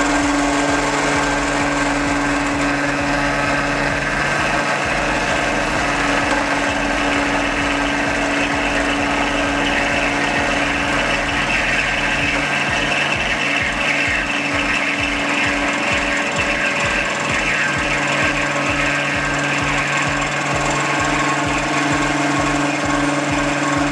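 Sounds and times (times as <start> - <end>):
low pulsing: 0.0 - 23.9
mill motor and gear hum: 0.0 - 23.9.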